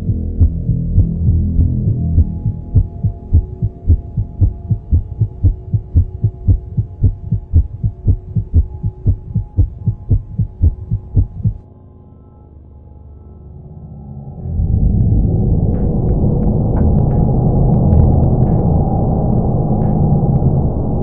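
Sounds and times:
heartbeat-like double thump: 0.0 - 11.6
droning chord: 0.0 - 21.0.

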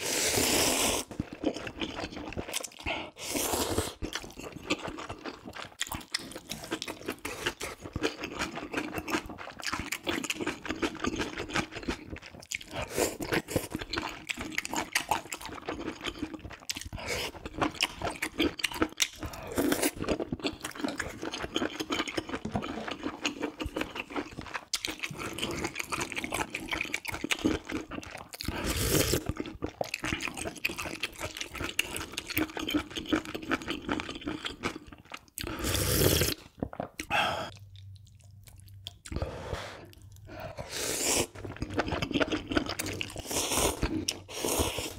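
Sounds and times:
slurping: 0.0 - 9.2, 35.4 - 37.6, 39.0 - 44.9
person chewing noodles: 0.0 - 44.9.

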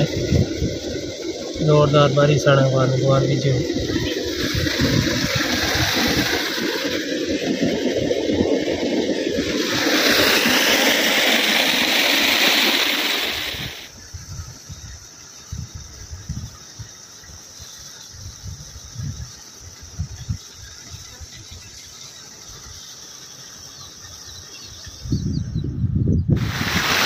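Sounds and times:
water rushing and splashing: 0.0 - 14.0, 26.4 - 27.0.

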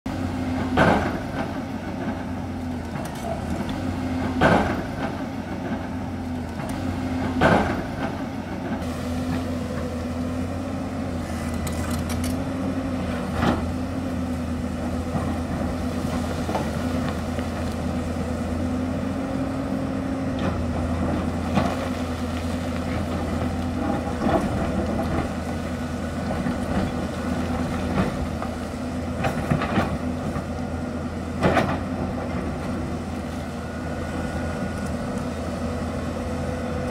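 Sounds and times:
excavator diesel engine running: 0.1 - 36.9
excavator bucket knocks and clanks: 0.6 - 2.2, 4.2 - 5.9, 6.6 - 8.9.

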